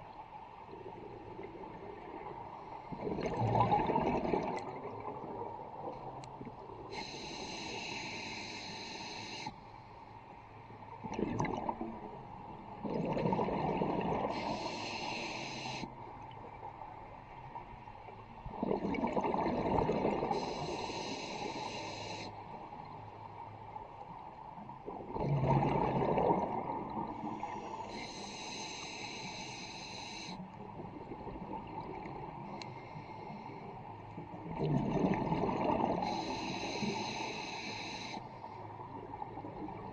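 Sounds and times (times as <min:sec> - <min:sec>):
exhaled bubbles gushing: 0:02.9 - 0:05.5, 0:11.0 - 0:12.1, 0:12.8 - 0:14.3, 0:18.5 - 0:20.4, 0:24.9 - 0:27.2, 0:34.5 - 0:36.2
regulator hissing inhalation: 0:07.0 - 0:09.6, 0:14.3 - 0:15.9, 0:20.4 - 0:22.3, 0:27.6 - 0:30.4, 0:36.0 - 0:38.2.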